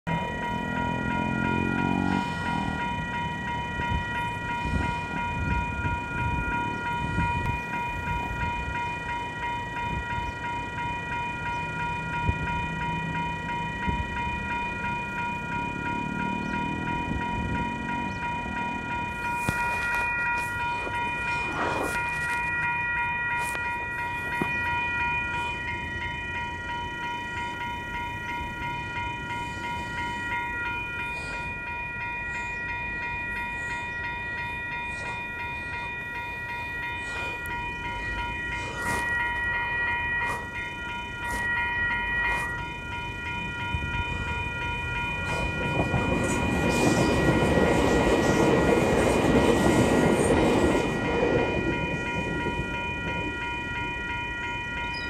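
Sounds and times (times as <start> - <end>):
crossing warning bell ringing: 0.0 - 55.0
train rumbling over crossing: 0.0 - 55.0
train horn: 0.1 - 3.0.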